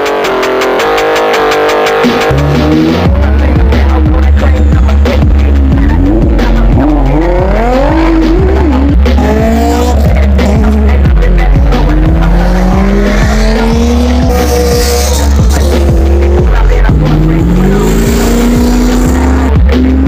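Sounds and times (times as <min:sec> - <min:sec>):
car engines revving: 0:00.0 - 0:20.0
phonk music with heavy bass: 0:00.0 - 0:20.0
tires squealing: 0:04.4 - 0:20.0.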